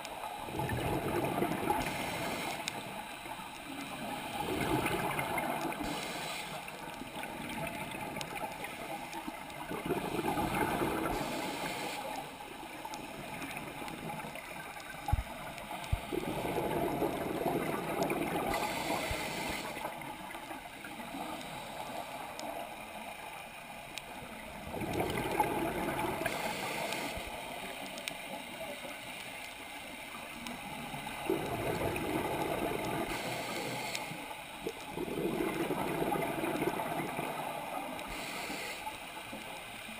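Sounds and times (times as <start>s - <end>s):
diver's bubbles gurgling underwater: 0.5s - 2.9s, 4.0s - 6.0s, 6.8s - 11.6s, 13.1s - 20.1s, 24.5s - 27.0s, 30.7s - 33.8s, 34.6s - 38.0s
regulator hiss: 1.6s - 4.4s, 5.2s - 7.0s, 11.0s - 13.3s, 18.4s - 20.1s, 26.1s - 27.9s, 33.0s - 34.5s, 38.0s - 39.4s.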